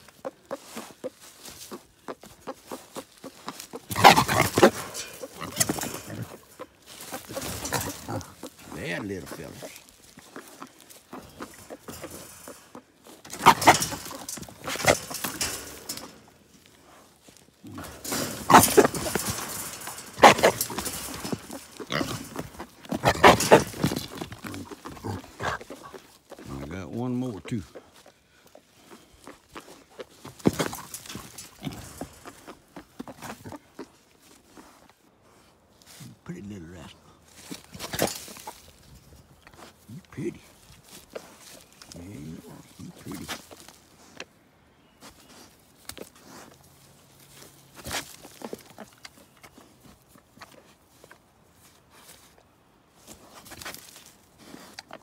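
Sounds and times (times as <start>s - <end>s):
hogs grunting: 0.0s - 44.3s
hogs harsh squeal: 13.3s - 16.1s.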